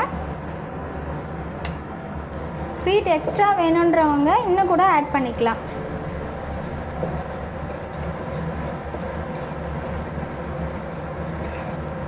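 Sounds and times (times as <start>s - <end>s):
steady low hum: 0.0s - 12.0s
spatula stirring thick paste in pan: 5.7s - 12.0s.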